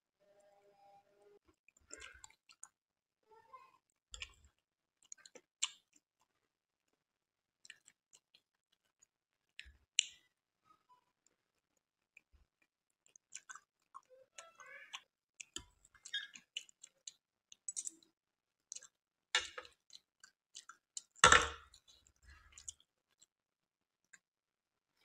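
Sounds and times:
wet eating mouth sounds: 1.8 - 2.8, 13.0 - 18.0.

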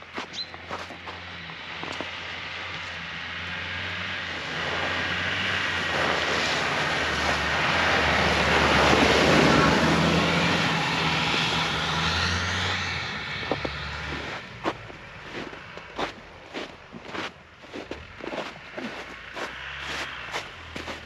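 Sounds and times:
footsteps crunching in snow: 0.0 - 3.0, 11.3 - 21.0
tyres on snowy track: 0.0 - 21.0
vehicle engine driving past: 0.7 - 21.0.

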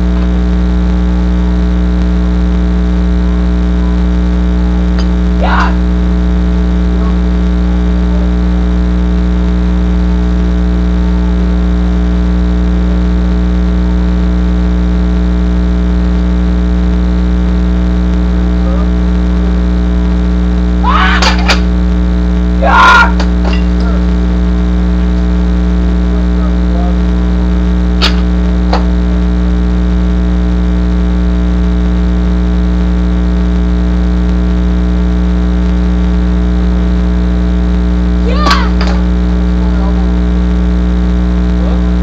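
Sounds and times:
loud electrical hum: 0.0 - 42.0
voices: 2.8 - 10.0, 18.2 - 19.9, 20.8 - 21.7, 22.6 - 29.6, 38.2 - 40.4, 41.4 - 42.0.

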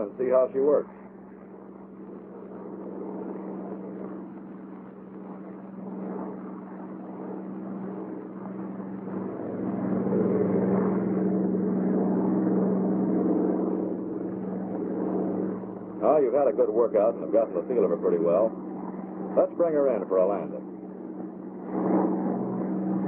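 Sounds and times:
aircraft engine droning in flight: 0.0 - 23.0.

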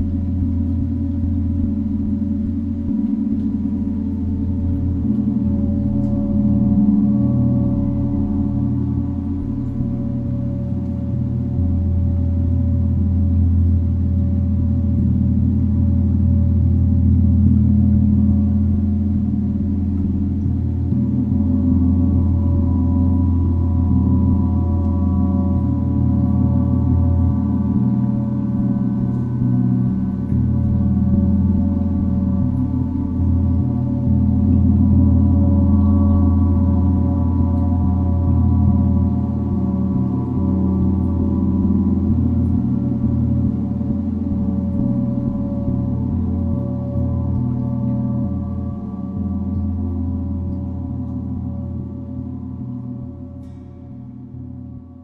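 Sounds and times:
gong ringing: 19.3 - 54.9.

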